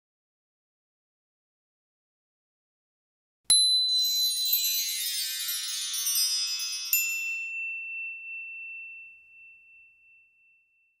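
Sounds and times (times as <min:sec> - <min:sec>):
high ringing chime tones: 0:03.5 - 0:11.0.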